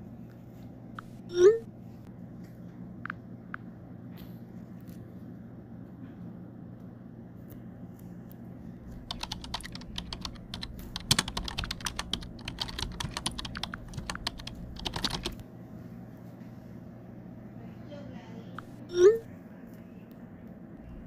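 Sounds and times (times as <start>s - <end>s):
low hum: 0.0s - 17.8s
keyboard typing: 8.8s - 15.4s.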